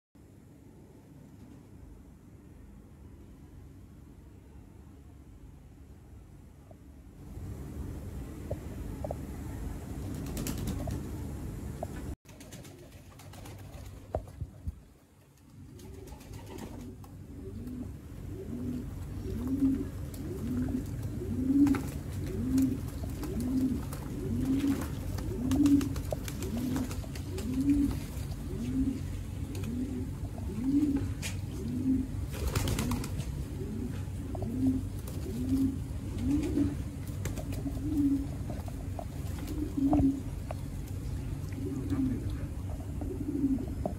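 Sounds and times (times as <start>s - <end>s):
wing flaps: 10.0s - 11.3s, 11.9s - 17.2s, 19.3s - 30.0s, 32.2s - 33.4s
pigeons cooing: 15.5s - 43.9s.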